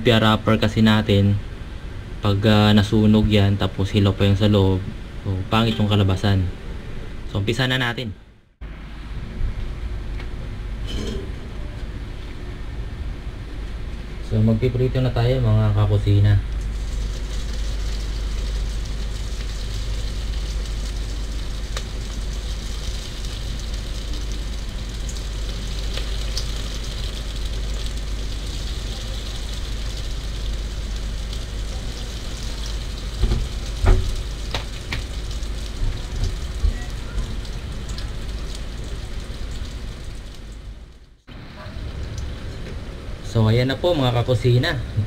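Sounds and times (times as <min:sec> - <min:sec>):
spring rolls sizzling in oil: 0:16.6 - 0:40.9.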